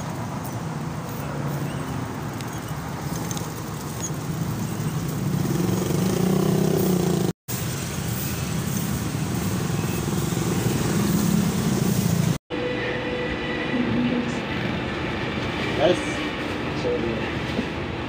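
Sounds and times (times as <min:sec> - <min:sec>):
traffic: 0:00.0 - 0:18.0
motorcycle engine running: 0:04.0 - 0:07.3.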